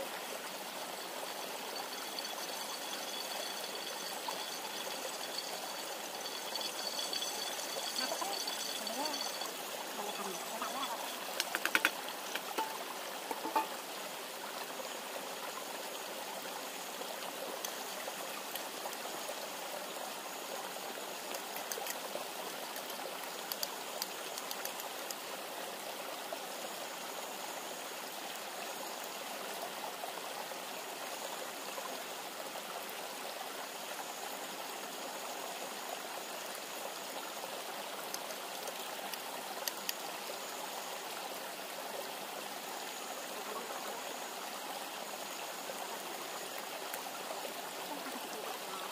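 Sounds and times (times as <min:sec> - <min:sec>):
river rushing: 0:00.0 - 0:15.1.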